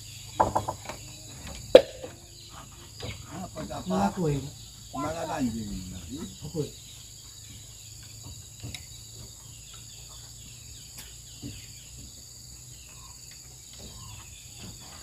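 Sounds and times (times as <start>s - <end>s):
insects chorus: 0.0s - 15.0s
faint knocks: 0.4s - 4.3s.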